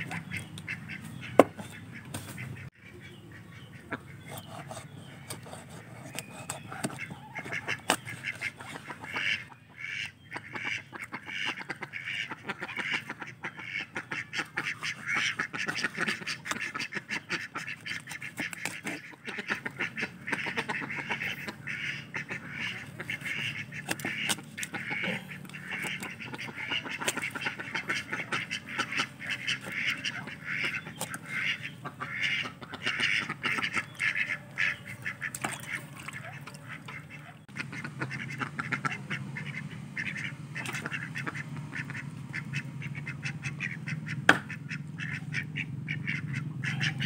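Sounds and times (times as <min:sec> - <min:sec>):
ducks quacking: 0:00.0 - 0:47.0
cleaver knocking on chopping block: 0:01.4 - 0:01.6.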